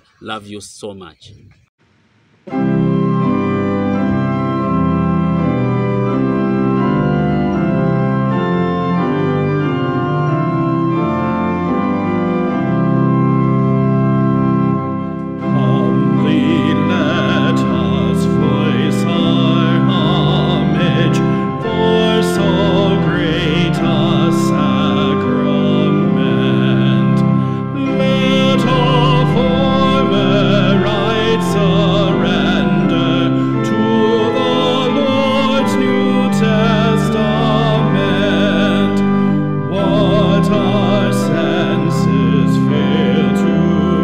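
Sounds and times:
organ playing chords: 2.4 - 44.0
person singing with vibrato: 15.4 - 44.0.

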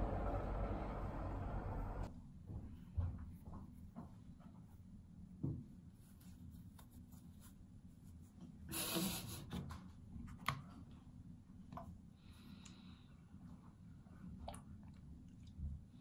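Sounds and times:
rubbing of cotton pad: 5.6 - 9.4.

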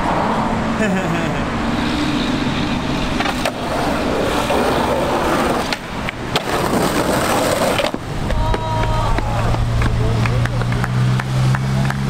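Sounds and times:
skateboard wheels rolling on concrete: 0.0 - 12.0
skateboard clacking on ground: 3.1 - 12.0.

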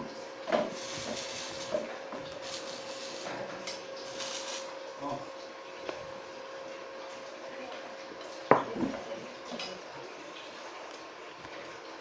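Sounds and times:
steady hiss: 0.6 - 1.8, 4.1 - 4.7.

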